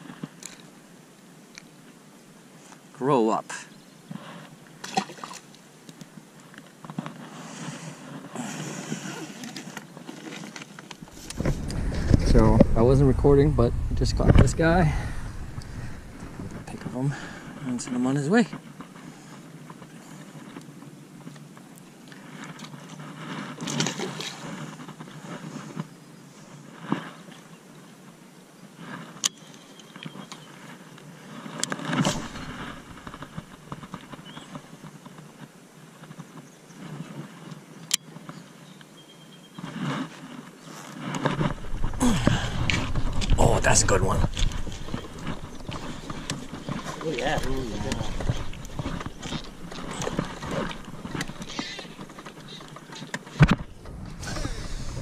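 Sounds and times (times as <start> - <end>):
rod handling and wind noise: 8.0 - 25.9, 28.8 - 39.0, 39.6 - 55.0
gear knocking in boat: 41.3 - 55.0.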